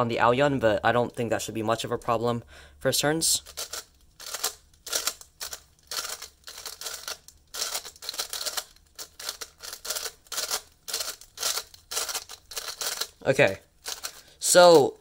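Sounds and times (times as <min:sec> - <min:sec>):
plastic puzzle clicking and scraping: 0:03.4 - 0:13.2, 0:13.8 - 0:15.0.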